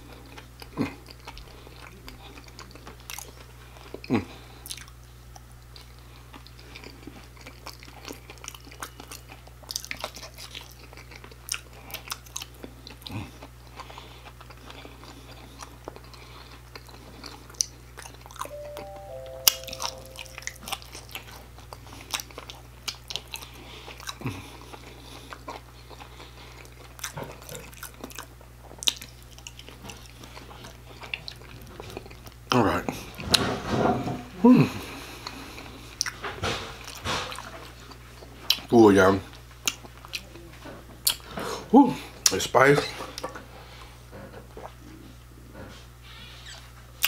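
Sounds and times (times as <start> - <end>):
crunchy chewing: 0.0 - 18.5, 21.7 - 32.4.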